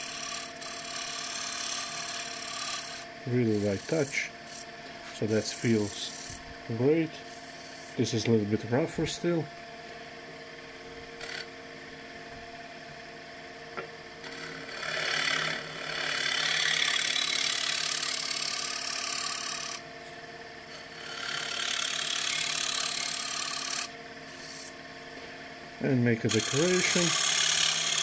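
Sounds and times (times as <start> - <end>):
scraper cutting spinning wood: 0.0 - 9.4, 14.2 - 19.9, 20.8 - 24.8, 26.0 - 28.0
wood lathe humming: 0.0 - 28.0.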